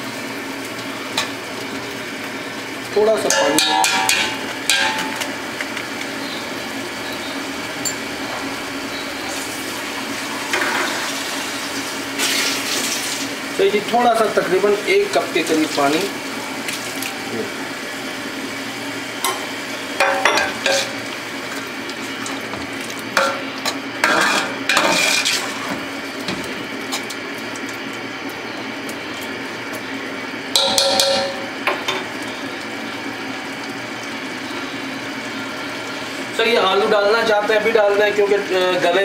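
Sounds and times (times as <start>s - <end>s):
curry sizzling: 0.0s - 39.0s
spoon scraping a metal pot: 24.1s - 25.6s.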